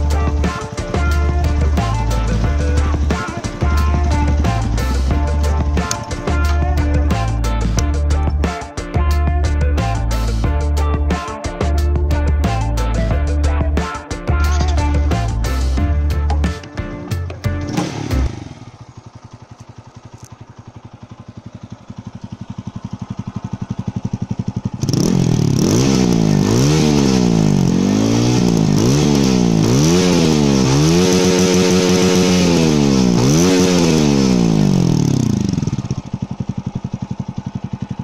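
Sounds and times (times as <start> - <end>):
motorcycle engine idling and revving: 0.0 - 38.0.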